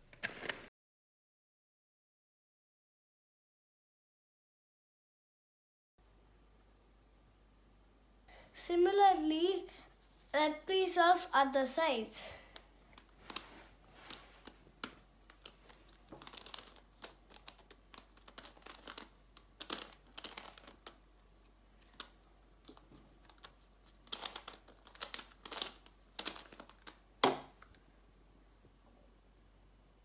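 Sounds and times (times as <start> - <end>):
puzzle cube clicking and rattling: 14.1 - 21.0, 21.8 - 27.7.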